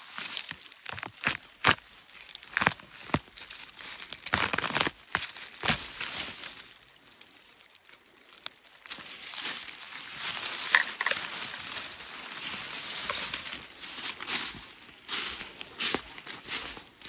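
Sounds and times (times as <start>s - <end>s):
dry bark tearing and snapping: 0.0s - 9.2s.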